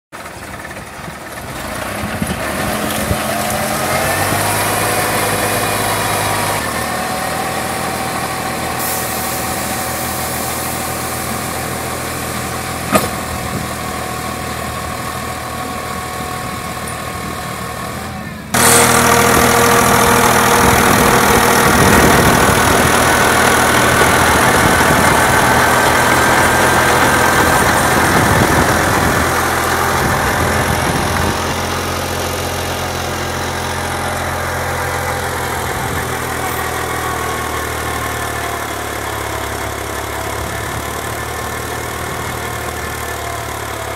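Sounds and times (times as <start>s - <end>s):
tractor diesel engine running: 0.1s - 43.9s.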